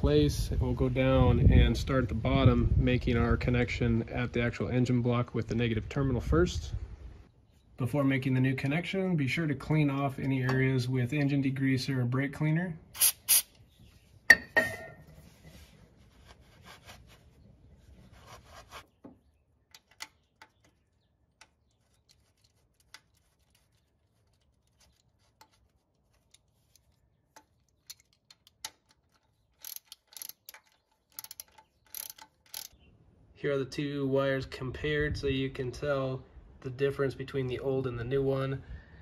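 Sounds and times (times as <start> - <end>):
small metal clicks and rubbing: 19.6 - 32.8
socket ratchet clicking: 27.7 - 32.8.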